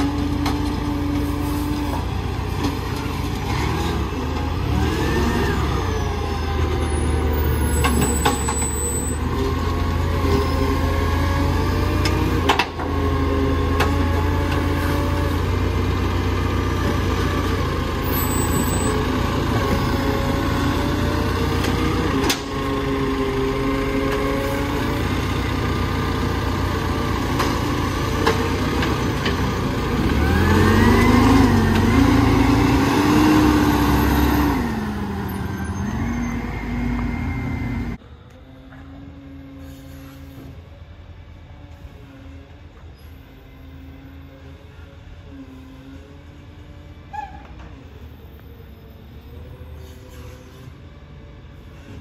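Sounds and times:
garbage truck diesel engine: 0.0 - 52.0.

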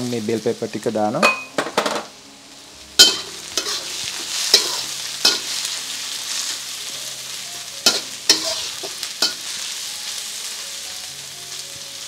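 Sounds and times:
food sizzling in oil: 0.0 - 12.0
metal spatula clanking on wok: 3.0 - 3.9, 4.5 - 5.5, 7.9 - 9.4.

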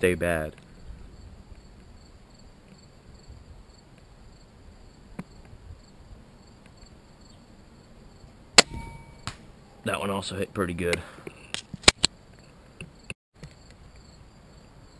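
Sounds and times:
crickets chirring: 0.0 - 10.4, 12.1 - 14.9
crossbow firing snap: 8.6 - 9.5.

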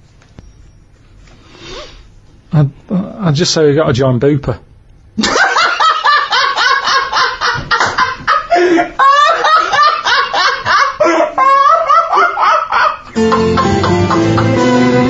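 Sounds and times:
man laughing hard: 5.2 - 15.0.

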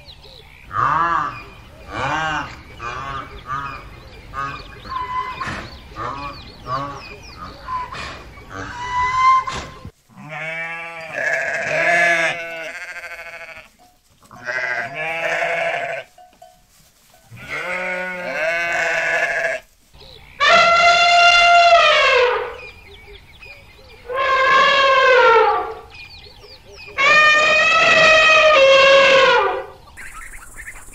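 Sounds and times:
sheep bleating: 10.1 - 16.2, 17.3 - 19.7.

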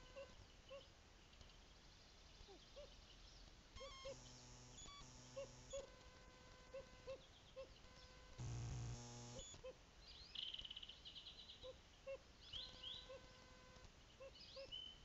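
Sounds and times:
camera electrical buzz: 3.8 - 7.0, 8.3 - 9.6.

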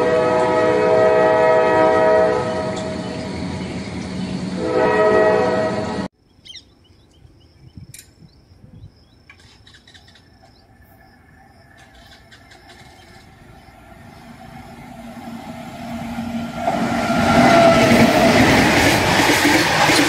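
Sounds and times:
train horn chord: 0.0 - 6.1, 14.2 - 18.5
distant electric locomotive hum: 0.0 - 20.0.

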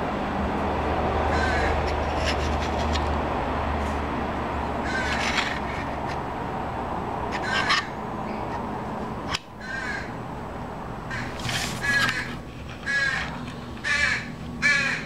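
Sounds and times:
bird harsh calls: 4.8 - 5.6, 7.3 - 8.5, 11.1 - 15.0.

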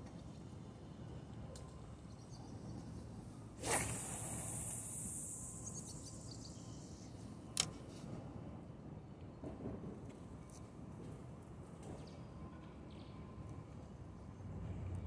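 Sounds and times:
fishing line hissing off a reel: 3.6 - 7.2.

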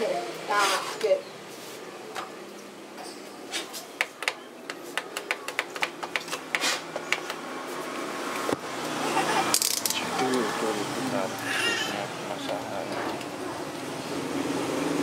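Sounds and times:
hands clicking plastic parts: 4.0 - 6.4.

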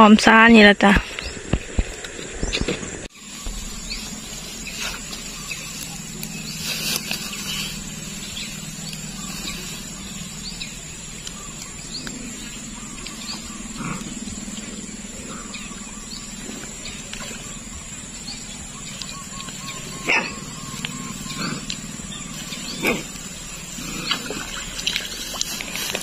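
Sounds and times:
high insect buzz: 1.0 - 26.0
low steady hum: 1.2 - 26.0
rustling splash: 1.6 - 11.0, 22.3 - 26.0.

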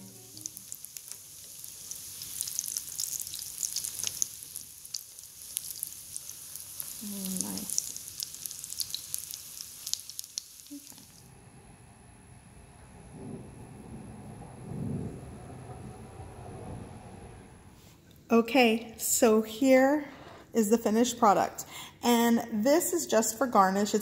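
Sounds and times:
battered slices sizzling in oil: 0.0 - 11.2.

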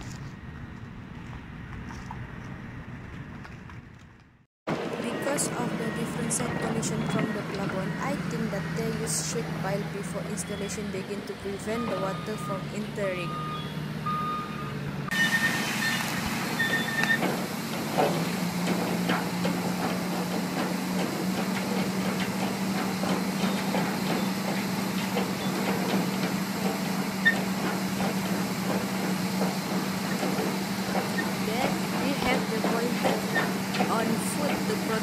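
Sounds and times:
pile-driving rig engine hum: 0.0 - 35.0
pile driving knocks and rattles: 16.2 - 35.0.

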